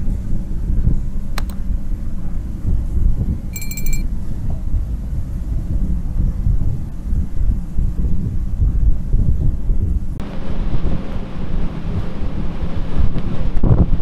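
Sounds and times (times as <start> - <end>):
wind buffeting microphone: 4.1 - 14.0.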